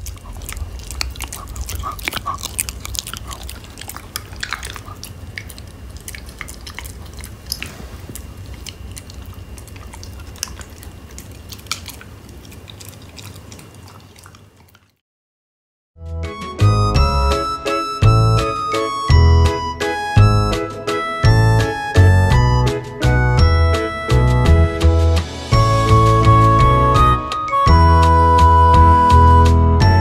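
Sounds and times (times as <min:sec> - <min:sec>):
dog chewing crunchily: 0:00.0 - 0:15.0.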